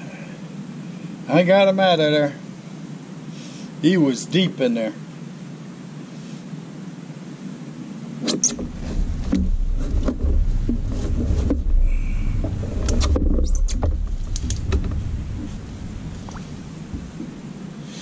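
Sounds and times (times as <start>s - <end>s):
low rumble: 8.6s - 17.8s.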